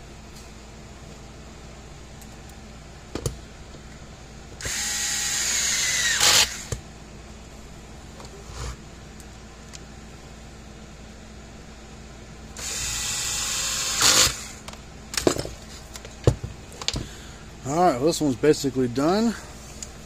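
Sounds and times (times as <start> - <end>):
cordless drill running: 4.6 - 6.8, 12.6 - 14.6.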